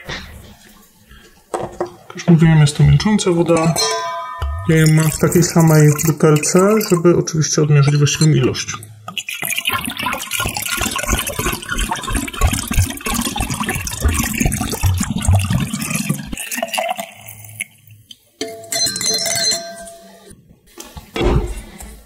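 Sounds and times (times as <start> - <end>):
glass clink: 3.6 - 5.6, 18.4 - 20.2
water pouring and gurgling: 4.4 - 18.3.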